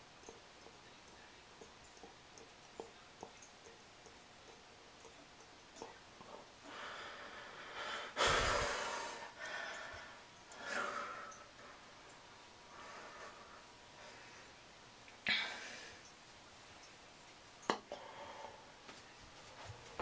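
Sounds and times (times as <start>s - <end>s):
person breathing: 6.6s - 12.0s, 12.7s - 14.6s, 17.9s - 18.8s.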